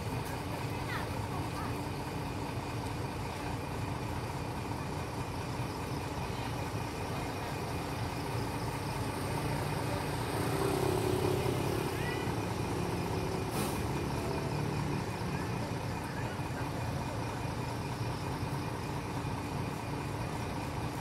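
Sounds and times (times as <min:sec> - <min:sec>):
diesel bus engine idling: 0:00.0 - 0:21.0
short hiss: 0:13.5 - 0:13.9.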